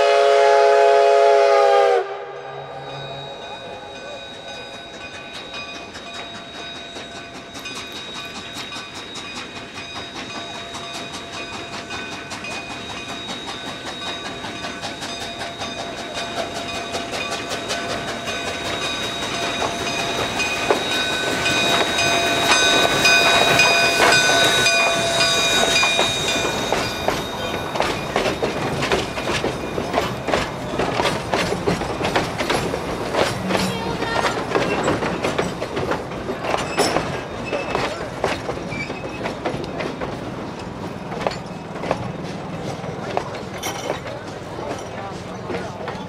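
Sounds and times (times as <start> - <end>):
steady high ringing tones: 2.4 - 30.8
train wheels clicking over rail joints: 4.3 - 46.0.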